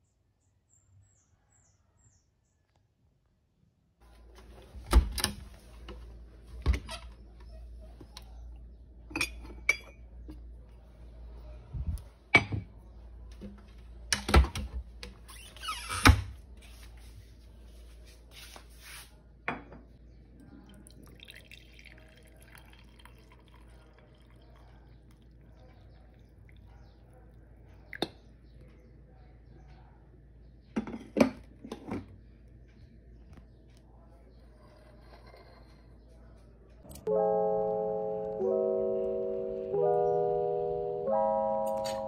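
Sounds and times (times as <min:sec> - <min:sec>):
coffee pouring into mug: 0:20.5 - 0:26.7.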